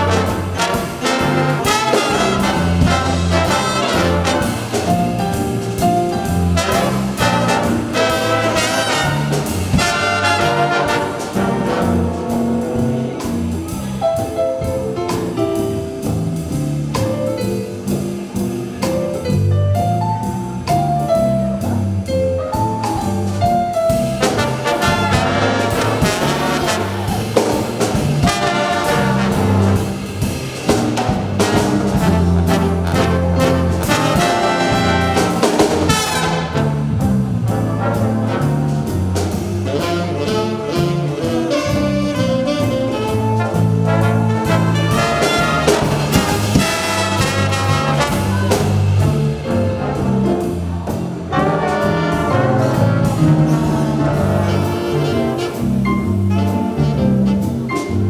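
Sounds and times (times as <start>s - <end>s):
big jazz band playing: 0.0s - 58.0s.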